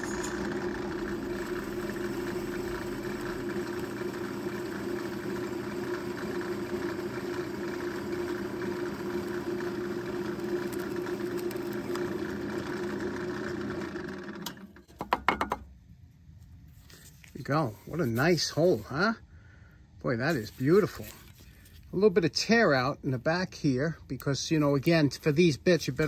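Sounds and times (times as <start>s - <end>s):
auger bit boring into wood: 0.0s - 14.8s
drill press motor humming: 0.0s - 15.0s.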